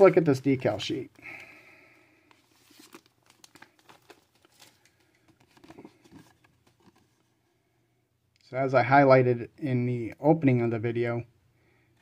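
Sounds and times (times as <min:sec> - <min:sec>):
plastic bag crinkling: 0:02.3 - 0:06.9.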